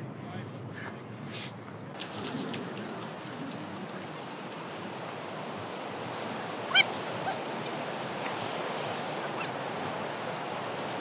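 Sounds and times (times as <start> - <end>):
wind: 0.0 - 11.0
surf washing: 1.9 - 11.0
dog yipping: 6.7 - 7.4.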